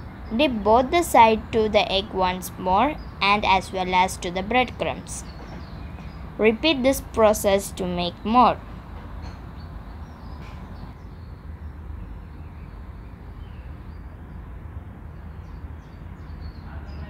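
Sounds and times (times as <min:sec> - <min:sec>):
low background hum: 0:00.0 - 0:09.4.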